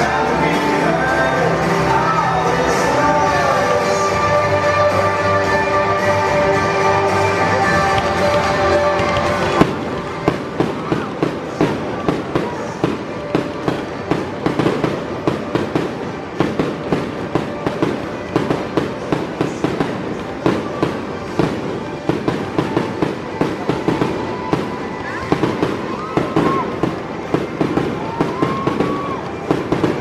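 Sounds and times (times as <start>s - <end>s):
fireworks popping and banging: 0.0s - 30.0s.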